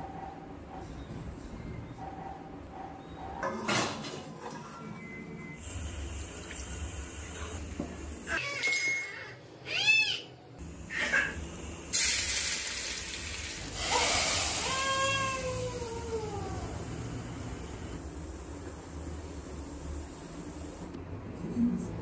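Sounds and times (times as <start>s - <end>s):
hot oil sizzling in a pan: 11.9s - 15.8s.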